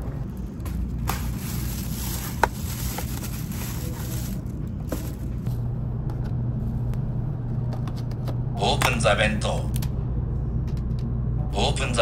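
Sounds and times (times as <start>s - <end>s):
train carriage rumble: 0.0s - 12.0s
plastic bag rustling: 0.2s - 5.5s.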